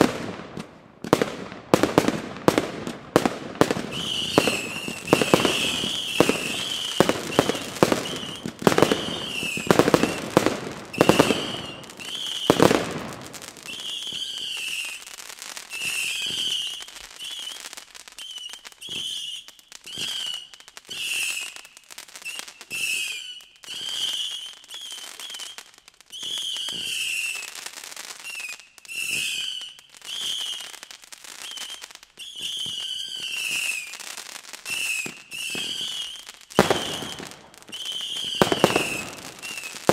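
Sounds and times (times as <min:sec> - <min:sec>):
firework bangs: 0:00.0 - 0:17.7, 0:31.4 - 0:39.9
firework hiss and crackle: 0:00.0 - 0:39.9
wavering high whistle: 0:03.9 - 0:10.2, 0:10.9 - 0:12.7, 0:13.6 - 0:15.1, 0:15.7 - 0:27.5, 0:28.2 - 0:30.7, 0:31.4 - 0:34.0, 0:34.6 - 0:39.8.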